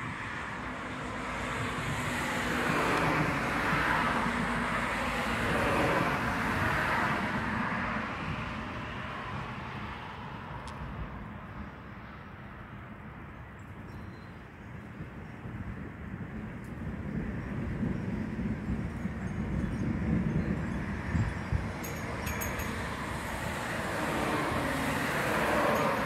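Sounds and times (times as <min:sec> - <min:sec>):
car passing: 0:00.2 - 0:10.6, 0:21.7 - 0:26.0.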